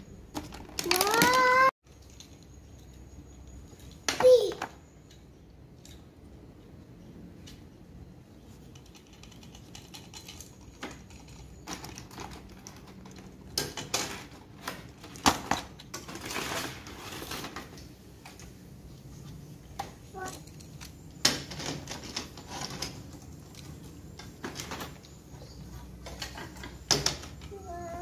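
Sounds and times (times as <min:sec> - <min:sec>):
plastic toy pieces clicking: 0:00.3 - 0:02.9, 0:08.6 - 0:16.4.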